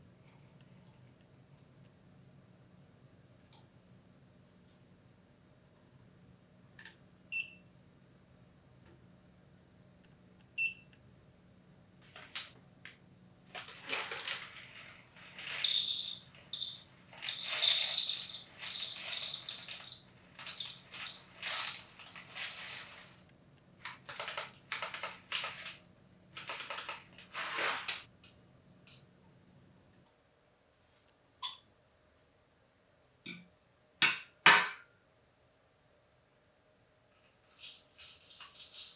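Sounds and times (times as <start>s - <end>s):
coffee beans rattling into glass jar: 13.6s - 23.2s, 37.4s - 38.9s.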